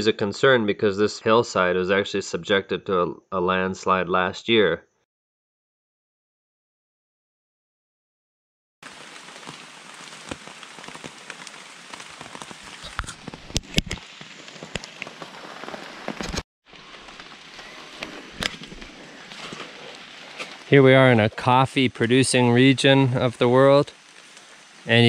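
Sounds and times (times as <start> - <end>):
close raindrops striking: 8.8 - 25.0
rain falling: 8.8 - 25.0.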